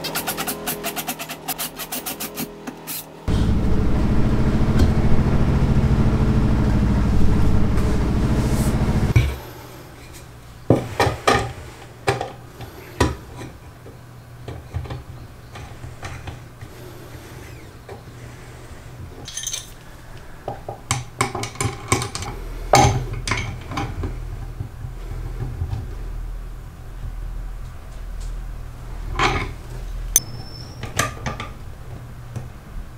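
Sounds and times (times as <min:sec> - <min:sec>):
wrench clicking and clinking: 0:19.3 - 0:19.8.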